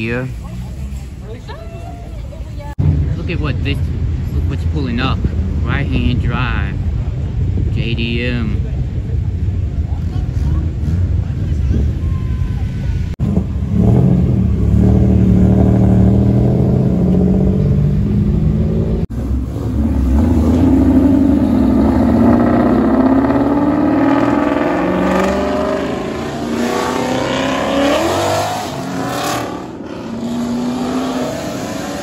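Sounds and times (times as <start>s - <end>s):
car engine at high revs: 13.1s - 32.0s.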